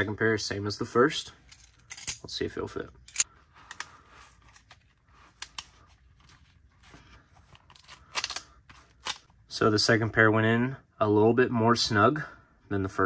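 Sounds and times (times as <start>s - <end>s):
metal handcuffs clicking and rattling: 1.4s - 2.3s, 3.1s - 4.7s, 7.7s - 9.3s
faint rubbing of pouch: 3.3s - 9.1s.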